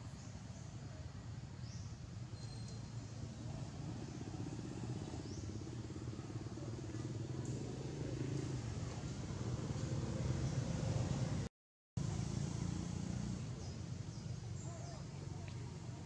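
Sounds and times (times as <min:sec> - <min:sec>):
faint high chirps: 0:02.3 - 0:03.2
vehicle engine humming: 0:02.9 - 0:16.0.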